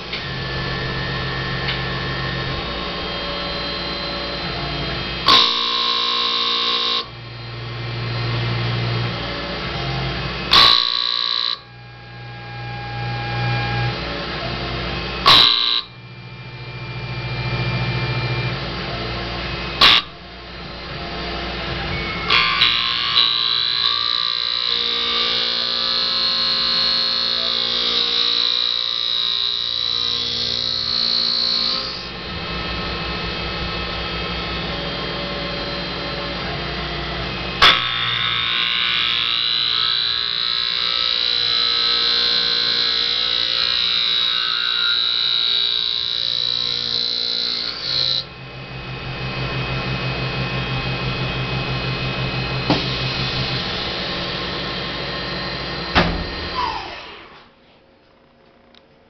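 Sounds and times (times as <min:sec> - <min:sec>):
spindle motor whine: 0:00.0 - 0:58.9
tool cutting wood: 0:22.3 - 0:33.1.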